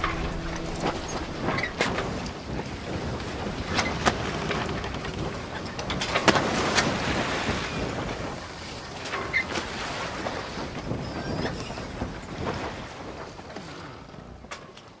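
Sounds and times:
water rushing: 0.0 - 5.5
wind: 0.0 - 15.0
faint creak: 3.7 - 6.1.

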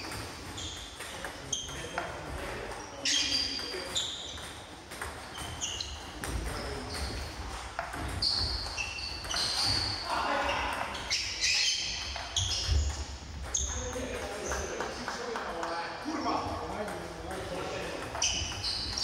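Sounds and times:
table tennis ball hits: 0.0 - 9.9.

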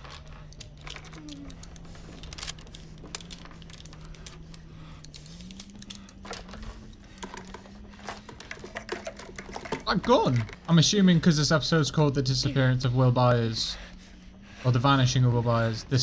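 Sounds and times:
low steady drone: 0.0 - 9.8, 10.4 - 16.0
gun and cartridges clicking: 0.0 - 10.7.

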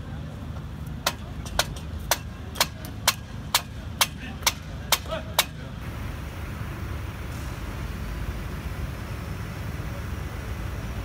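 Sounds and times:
low steady rumble: 5.6 - 11.0.

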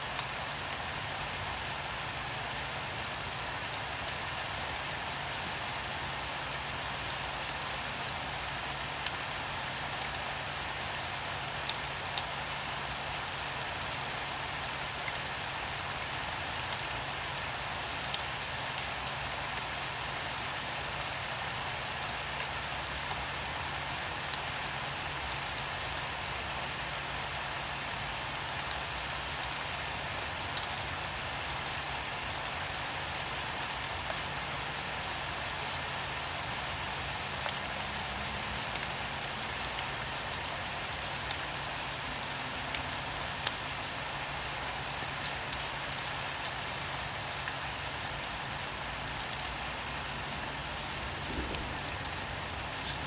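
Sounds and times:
steady rain falling: 0.0 - 53.0
low steady hum: 47.1 - 53.0.

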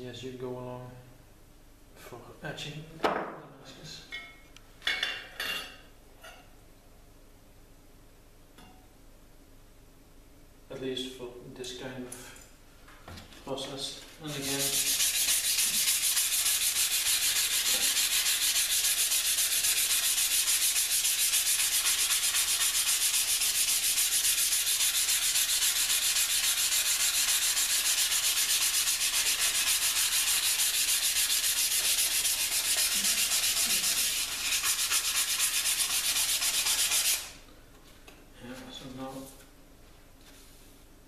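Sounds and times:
sandpaper rubbing on steel blade: 14.3 - 37.4.

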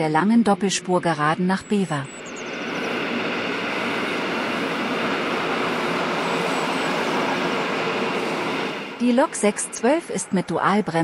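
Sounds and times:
train running on tracks: 0.0 - 11.0.

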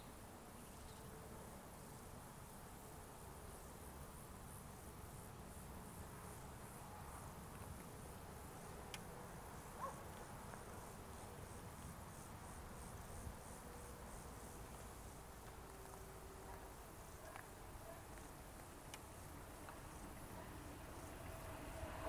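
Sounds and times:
insects chirping in pulses: 8.0 - 22.0.

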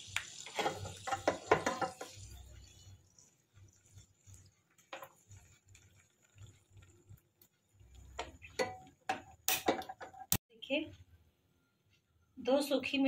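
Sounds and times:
chillies sizzling in hot oil: 0.0 - 10.4
oil popping: 0.0 - 10.4.

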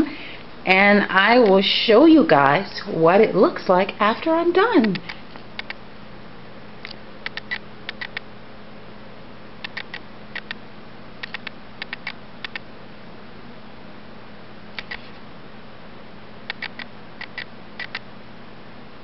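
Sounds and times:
camera clicks: 6.8 - 8.2, 9.6 - 10.6, 11.2 - 12.6, 14.8 - 15.1, 16.5 - 18.0.

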